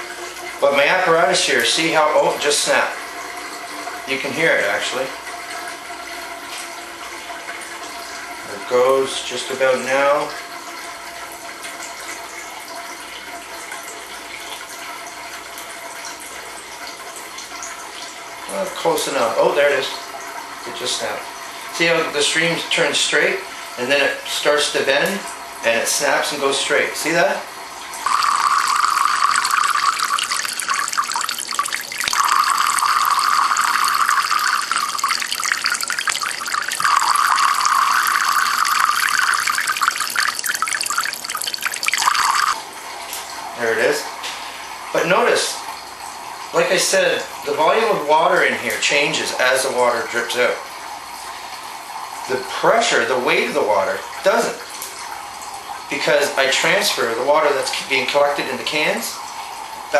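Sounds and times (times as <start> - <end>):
water trickling and splashing into cans: 0.0 - 59.9
water splashing into metal cans: 28.0 - 42.6.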